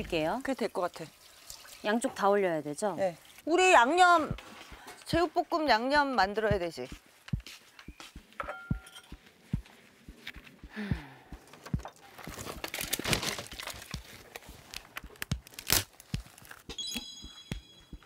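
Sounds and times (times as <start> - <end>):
footsteps: 6.4 - 12.7
kindling rustling and clattering: 11.4 - 15.0.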